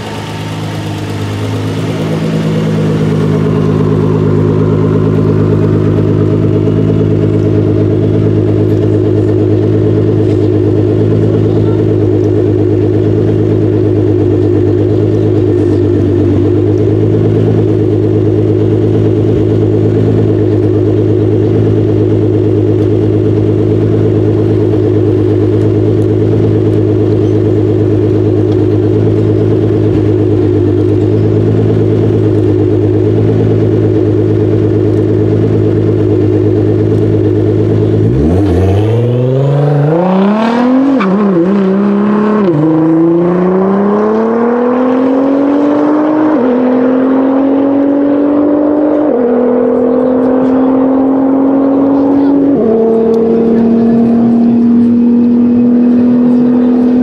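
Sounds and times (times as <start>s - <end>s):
car engine idling: 0.0s - 57.0s.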